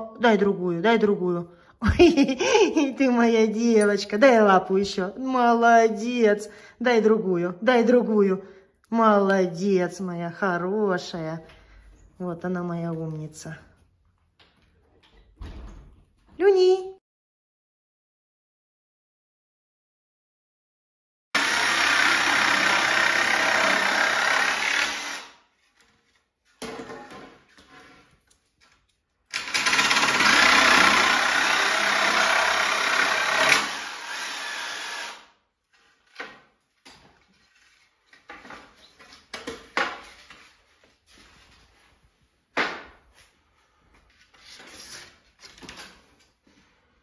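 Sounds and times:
electric jigsaw cutting boards: 21.4s - 25.4s, 29.3s - 35.4s.

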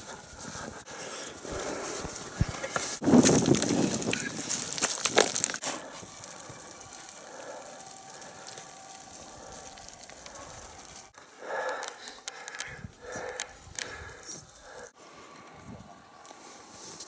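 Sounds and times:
faint outdoor hiss: 0.0s - 17.0s
boots crunching on rocky ground: 1.6s - 11.2s.

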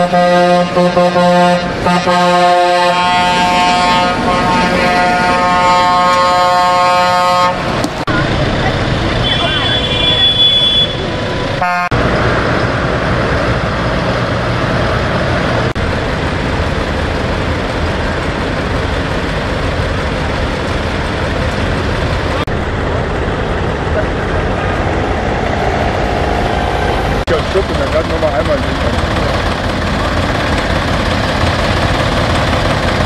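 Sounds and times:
vehicle horn: 0.0s - 7.7s, 9.2s - 12.0s
heavy diesel engines running: 0.0s - 33.0s.

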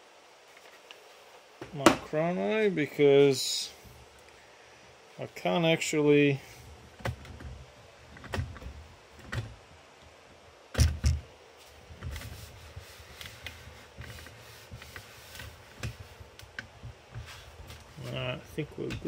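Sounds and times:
knocks and bumps on wooden bench: 10.8s - 11.2s.

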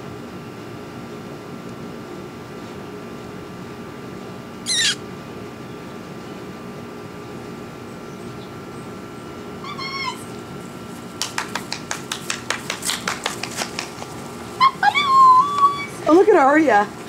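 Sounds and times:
puppy whimpering: 4.7s - 5.0s.

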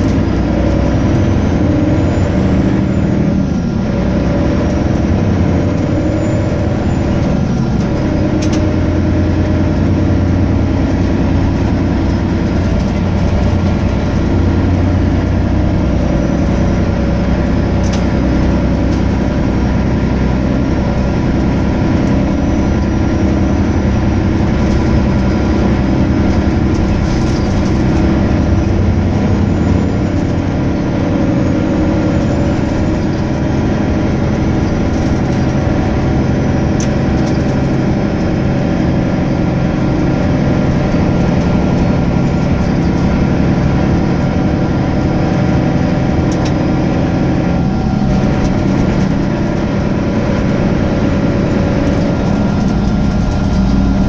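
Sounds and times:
bus diesel engine droning: 0.0s - 54.0s.

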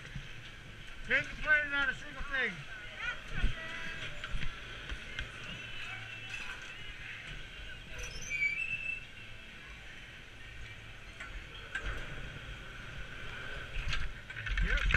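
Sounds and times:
brief high squeaks: 7.9s - 9.1s.

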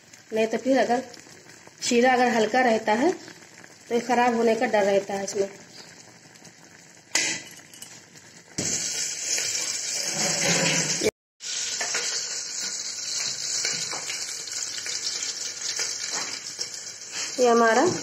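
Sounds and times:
syrup bubbling and sizzling: 0.0s - 18.0s.

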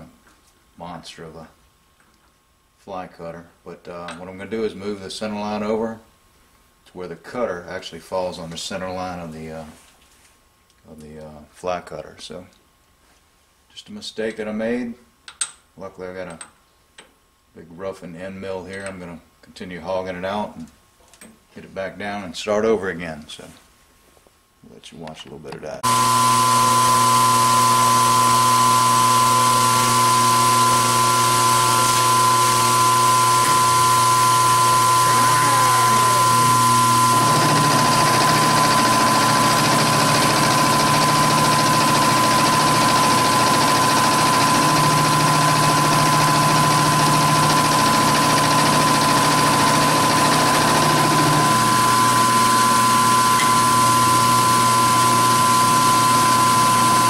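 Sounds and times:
milling machine cutting steel: 25.8s - 57.0s.

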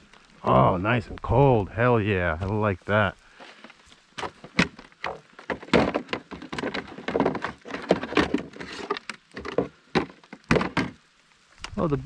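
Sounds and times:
rapid knocks and clatter: 4.2s - 11.0s.

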